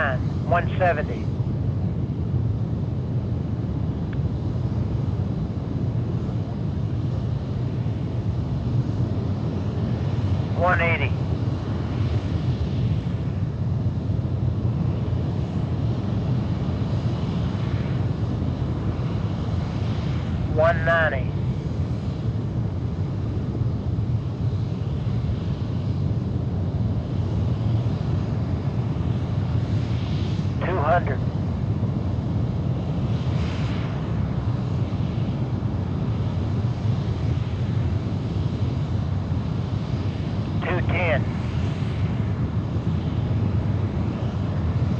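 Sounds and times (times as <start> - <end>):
rocket engine deep rumble: 0.0 - 44.9
rocket engine rumble: 40.1 - 44.8.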